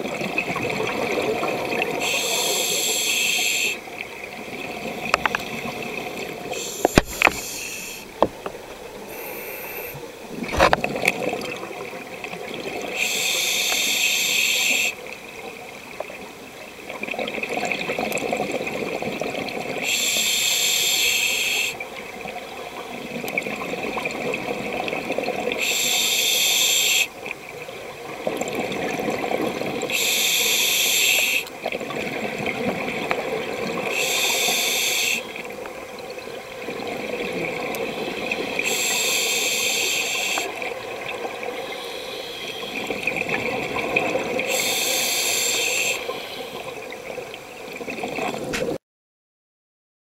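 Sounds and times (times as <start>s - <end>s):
hissing regulator inhale: 2.0s - 3.8s, 6.4s - 8.2s, 9.0s - 10.1s, 12.9s - 15.0s, 19.8s - 21.8s, 25.6s - 27.2s, 29.9s - 31.5s, 33.8s - 35.5s, 37.8s - 40.7s, 41.5s - 43.1s, 44.4s - 46.8s.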